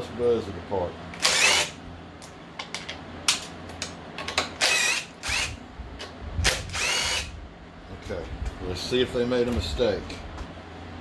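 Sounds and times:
power driver motor whine: 0:01.2 - 0:01.8, 0:04.6 - 0:05.6, 0:06.4 - 0:07.4.

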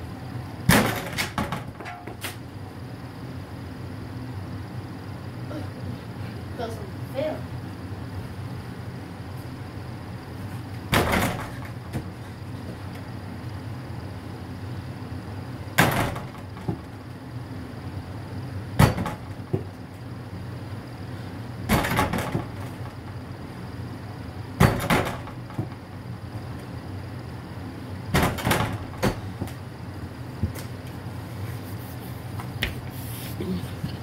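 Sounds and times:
door rattling: 0:21.7 - 0:23.0, 0:28.2 - 0:29.3.

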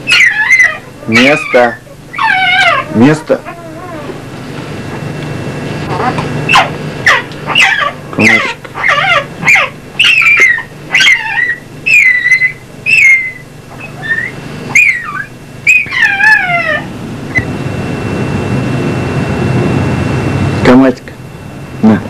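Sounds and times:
dog whining: 0:00.0 - 0:04.3, 0:05.8 - 0:17.5
steady rushing noise: 0:16.9 - 0:21.9.

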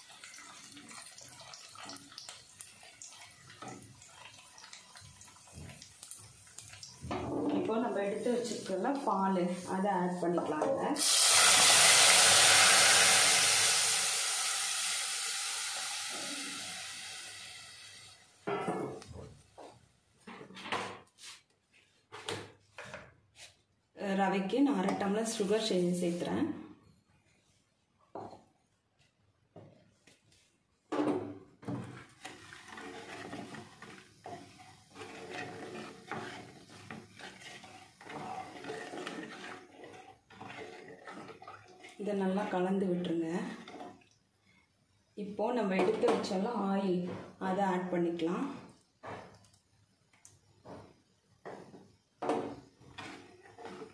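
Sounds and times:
milk sizzling in hot oil: 0:00.0 - 0:18.4, 0:25.0 - 0:26.3, 0:31.1 - 0:46.7, 0:48.7 - 0:53.9
spatula scraping a pot: 0:31.7 - 0:44.0, 0:52.8 - 0:53.9.

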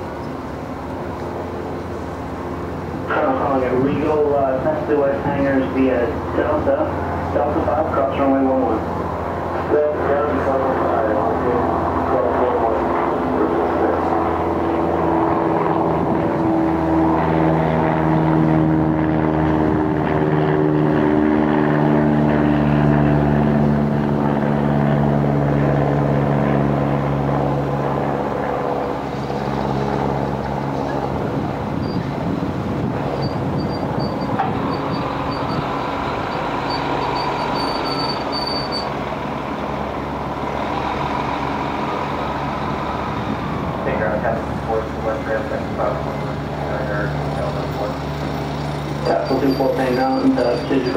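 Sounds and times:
large engine droning: 0:00.0 - 0:50.9
rough background hum: 0:00.0 - 0:50.9
faint whine: 0:20.0 - 0:50.9.

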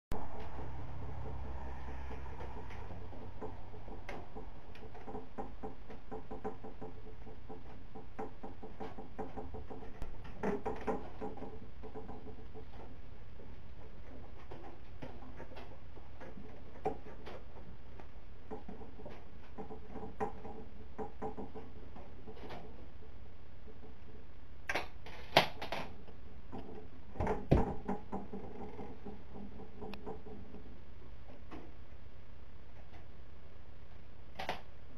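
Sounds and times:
cats tapping and scuffling on wood: 0:00.2 - 0:32.0.

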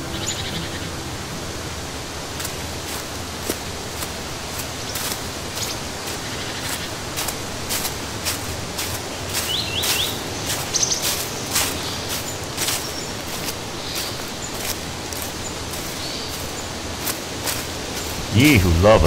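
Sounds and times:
bird chirping: 0:00.0 - 0:01.1, 0:09.2 - 0:14.7.

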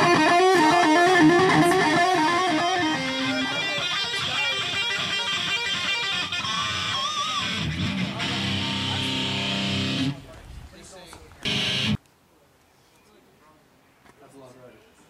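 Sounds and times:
electric guitar lead line: 0:00.0 - 0:10.2, 0:11.4 - 0:12.0.

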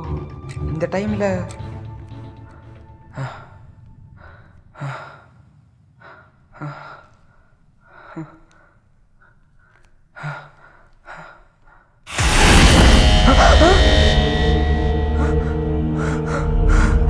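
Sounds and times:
man breathing heavily: 0:02.4 - 0:12.1.

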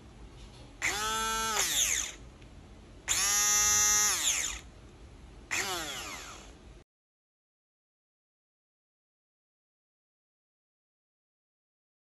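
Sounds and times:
hand blender motor whine: 0:00.8 - 0:02.2, 0:03.1 - 0:04.7, 0:05.5 - 0:06.6.

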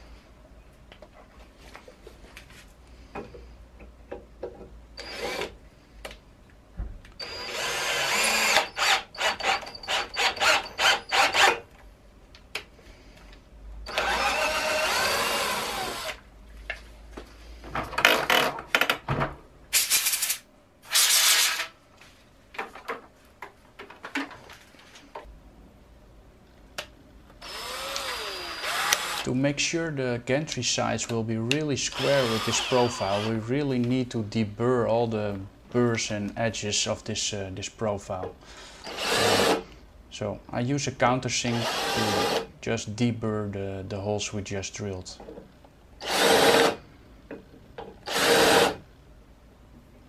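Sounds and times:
cordless drill motor whining: 0:05.0 - 0:05.6, 0:07.2 - 0:11.6, 0:13.9 - 0:16.2, 0:27.4 - 0:29.3, 0:31.9 - 0:33.3, 0:46.0 - 0:46.8.

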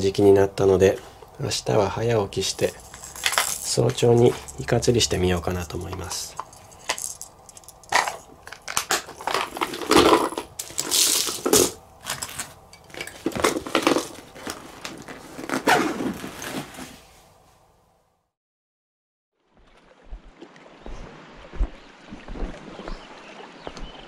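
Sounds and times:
stiff fabric bag rustling: 0:13.5 - 0:17.2.

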